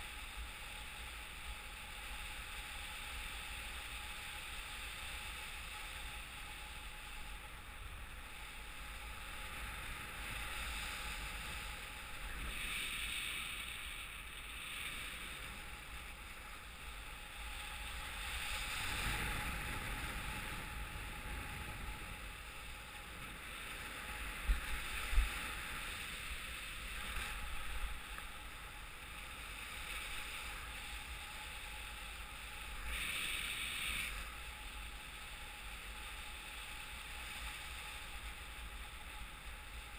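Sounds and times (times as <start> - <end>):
wind rushing over microphone: 6.5 - 38.0.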